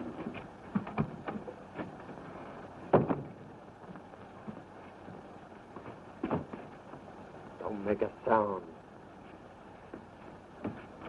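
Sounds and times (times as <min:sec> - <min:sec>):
film soundtrack hiss: 0:00.0 - 0:11.0
knocks and thumps: 0:00.2 - 0:02.0, 0:02.9 - 0:03.4, 0:05.8 - 0:07.0.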